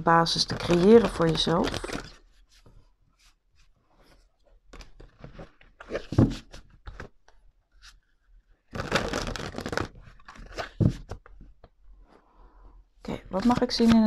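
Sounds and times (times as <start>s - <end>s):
cards tapping and sliding: 4.7s - 7.2s, 13.4s - 14.0s
riffle shuffle of cards: 8.7s - 11.4s, 13.3s - 14.0s.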